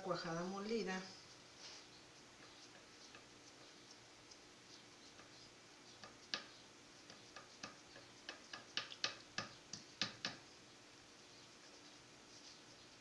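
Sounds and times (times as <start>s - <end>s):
hoop clicking against stone: 5.1s - 10.4s.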